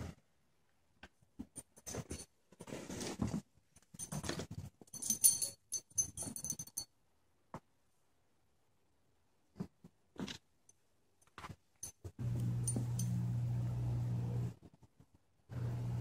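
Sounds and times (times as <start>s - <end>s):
high jingling: 4.9s - 6.9s.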